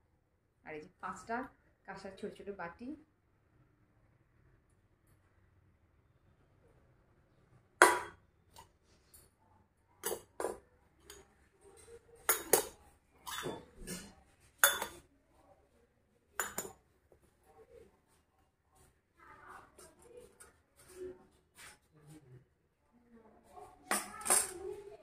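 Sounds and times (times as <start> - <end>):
metal bowls clinking: 10.0 - 11.2, 12.3 - 15.0, 16.4 - 16.8, 23.9 - 24.7.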